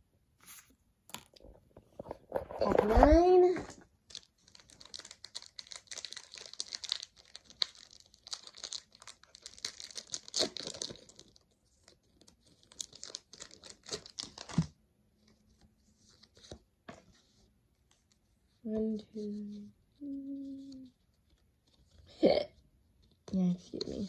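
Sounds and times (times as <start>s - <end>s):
foil wrapper crinkling: 4.1s - 11.4s, 12.2s - 14.6s.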